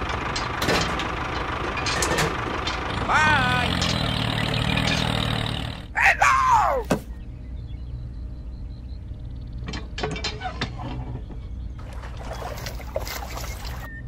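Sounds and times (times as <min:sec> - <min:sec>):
low steady hum: 0:05.8 - 0:14.0
soft water sounds: 0:11.8 - 0:14.0.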